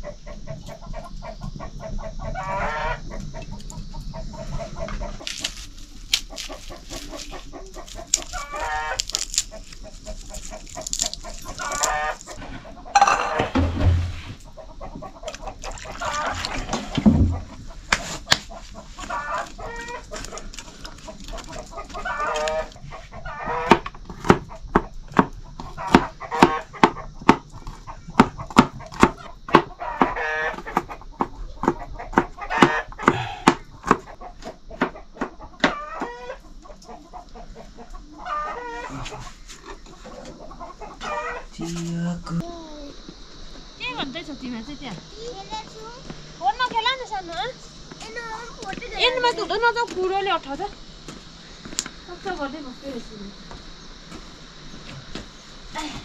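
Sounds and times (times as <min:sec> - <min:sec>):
chickens clucking: 0:00.0 - 0:41.8
rooster crowing: 0:01.6 - 0:03.4, 0:07.5 - 0:09.2, 0:10.9 - 0:13.6, 0:21.8 - 0:23.9, 0:29.8 - 0:30.7, 0:38.2 - 0:39.2, 0:41.0 - 0:41.5.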